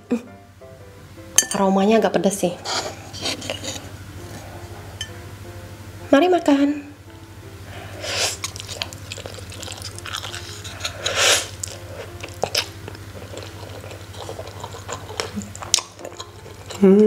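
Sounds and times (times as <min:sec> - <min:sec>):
noodle slurps: 0:08.2 - 0:12.7
wet chewing: 0:08.2 - 0:16.9.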